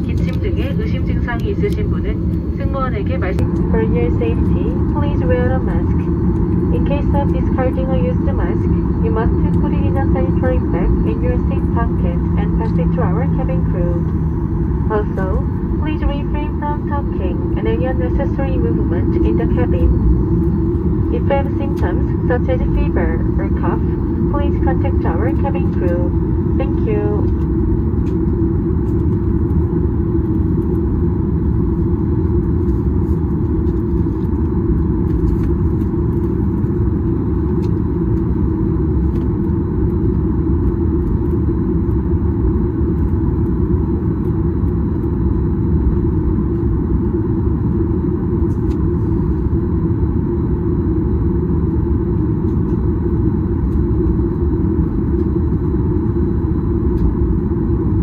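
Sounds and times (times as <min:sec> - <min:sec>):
aircraft cabin rumble: 0:00.0 - 0:58.0.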